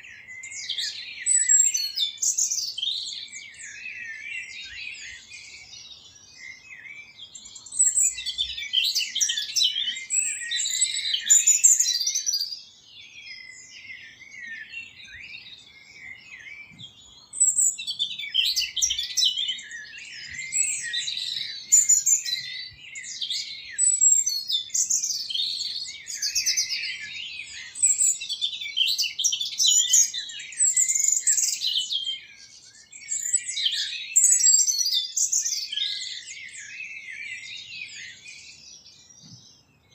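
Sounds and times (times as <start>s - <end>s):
songbirds chirping: 0.0s - 39.9s.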